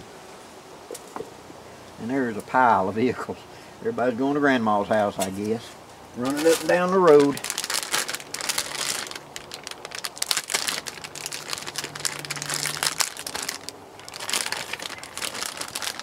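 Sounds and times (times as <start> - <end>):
plastic bag crinkling: 6.2 - 16.0.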